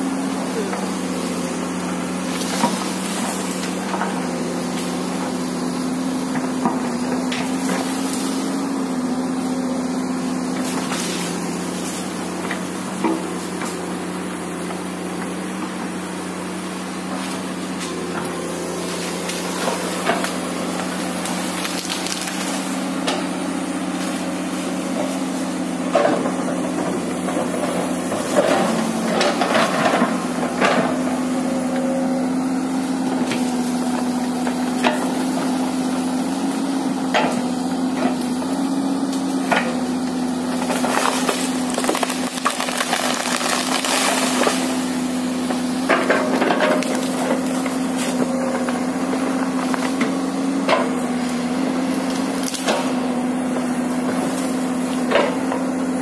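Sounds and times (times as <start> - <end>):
excavator diesel engine running: 0.0 - 56.0
tree trunks cracking and splintering: 18.4 - 23.2, 40.5 - 45.6, 51.8 - 53.0.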